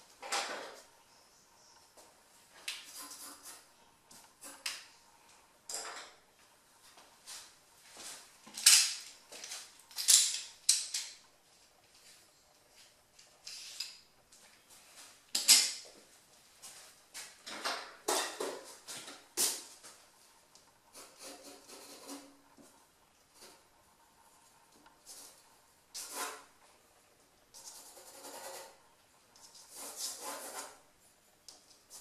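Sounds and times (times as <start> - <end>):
pencil scratching on paper: 2.8 - 3.7, 20.9 - 22.4, 26.0 - 26.5, 27.6 - 30.8.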